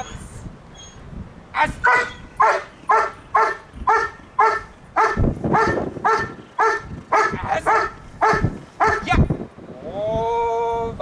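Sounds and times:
dog barking: 0:01.8 - 0:09.1.

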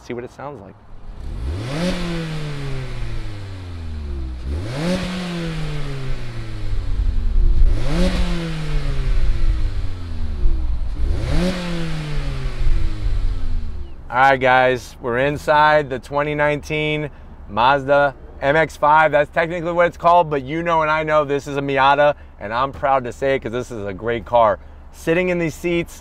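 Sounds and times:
car engine revving: 0:00.8 - 0:14.2.

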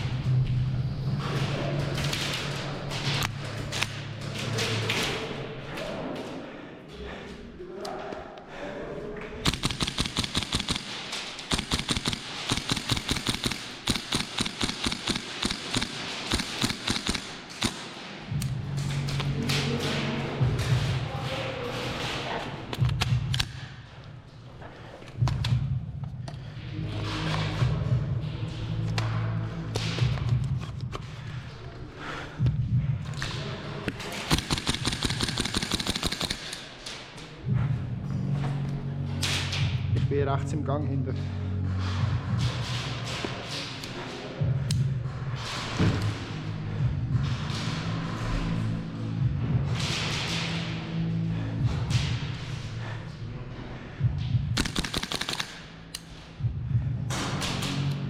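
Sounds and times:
airsoft rifle firing: 0:09.4 - 0:18.3, 0:34.1 - 0:36.8, 0:54.6 - 0:55.9
rifle bolt cycling: 0:34.3 - 0:36.7, 0:54.6 - 0:56.1.

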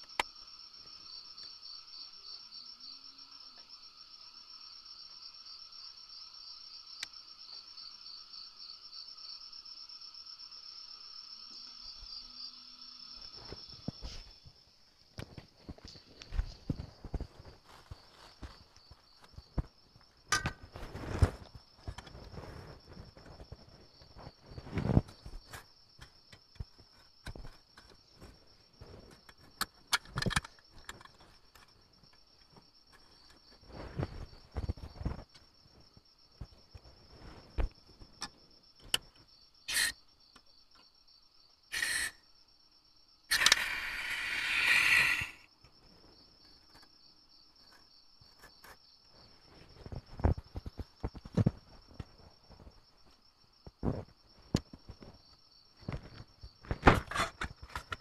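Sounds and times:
crickets chirping: 0:00.0 - 0:58.0
camping gear being handled: 0:13.4 - 0:31.8
loud rushing hiss: 0:43.3 - 0:45.5.

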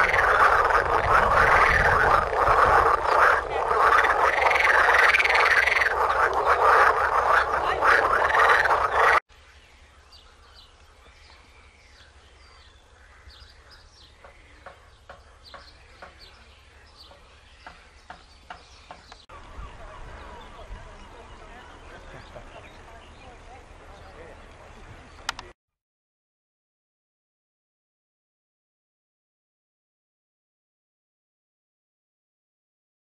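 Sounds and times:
frogs croaking: 0:00.0 - 0:21.8.

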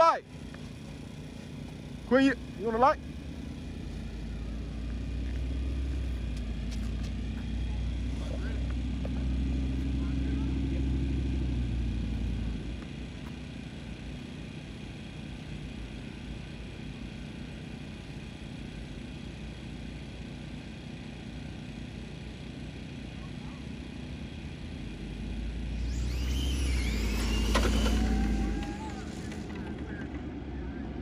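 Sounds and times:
low background rumble: 0:00.0 - 0:31.0
electric motors whining: 0:25.2 - 0:31.0.

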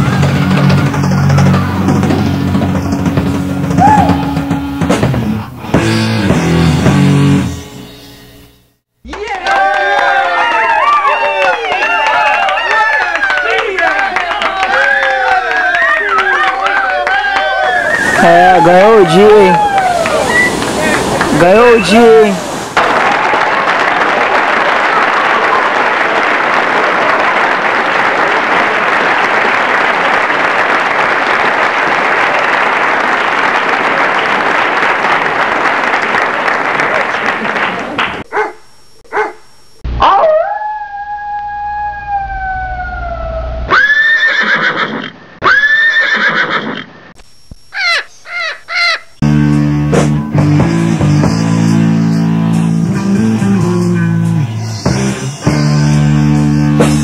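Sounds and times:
rock music with guitar and drums: 0:00.0 - 0:08.2, 0:49.2 - 0:57.0
dog howling: 0:14.8 - 0:20.5, 0:40.0 - 0:44.2
ocean surf breaking: 0:17.6 - 0:24.3.

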